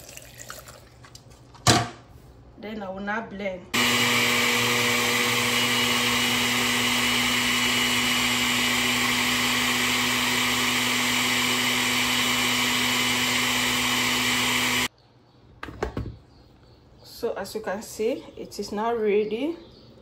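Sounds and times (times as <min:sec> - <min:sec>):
blender running: 0:03.8 - 0:14.9.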